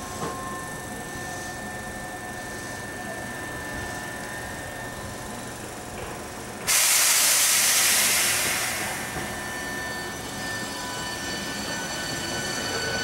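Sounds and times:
trains running: 0:00.0 - 0:13.0
compressed air hiss: 0:06.7 - 0:09.0.

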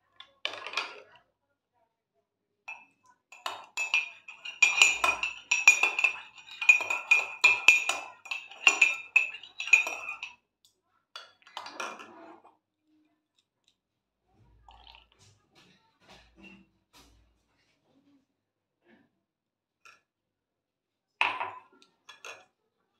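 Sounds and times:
spoon clinking in ceramic cup: 0:02.7 - 0:10.3
spoon scraping cup: 0:03.3 - 0:10.3.

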